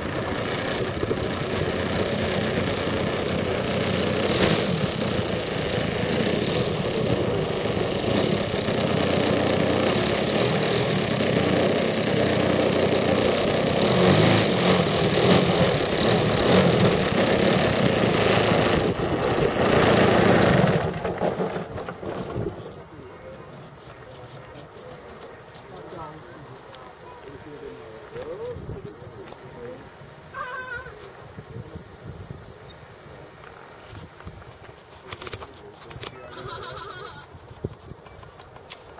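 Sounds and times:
model airplane engine running: 0.0s - 21.1s.

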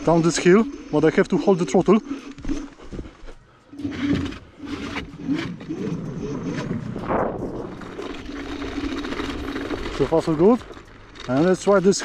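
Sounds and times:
wheels rattling over wooden planks: 0.0s - 12.0s
electric scooter motor whine: 3.7s - 11.4s.

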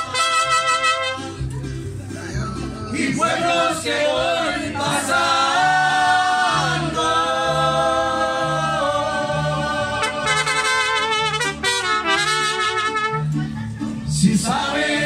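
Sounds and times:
repeating bass line: 2.5s - 13.2s
voices singing held notes: 2.8s - 11.7s, 14.2s - 15.0s.

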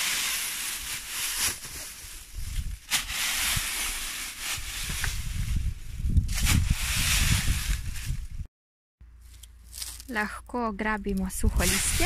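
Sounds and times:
rake scraping dry leaves: 0.0s - 5.5s, 9.2s - 10.2s, 11.4s - 12.0s.

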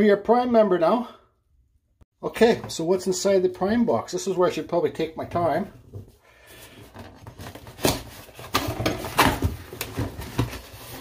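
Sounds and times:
cardboard rustling and scraping: 5.9s - 11.0s
cardboard crackles: 6.6s - 11.0s.

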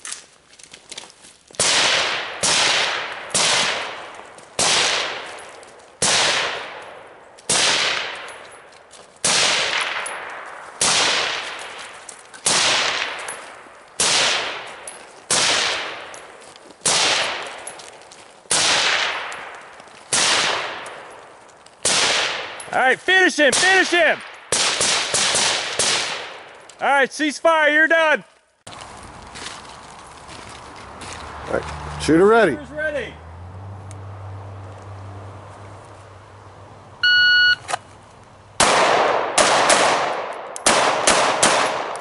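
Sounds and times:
rifle shots: 1.6s - 16.2s, 16.8s - 17.7s, 18.5s - 21.2s, 21.8s - 22.6s, 23.4s - 26.6s, 38.6s - 42.0s.

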